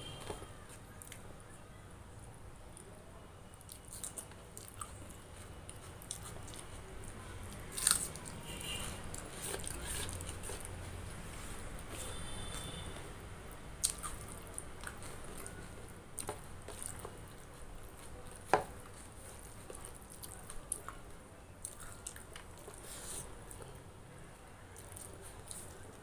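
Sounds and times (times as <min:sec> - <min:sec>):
chewing: 0:03.5 - 0:11.0, 0:13.5 - 0:21.0, 0:21.6 - 0:23.8, 0:24.8 - 0:26.0.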